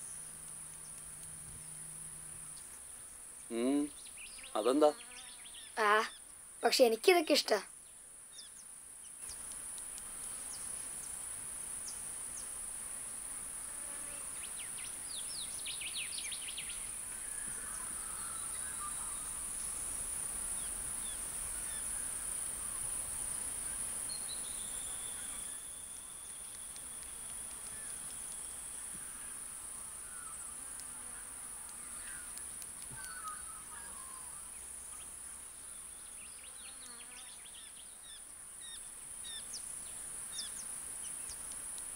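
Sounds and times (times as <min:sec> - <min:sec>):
insects droning: 0:00.0 - 0:41.9
bird chirps: 0:31.9 - 0:35.1.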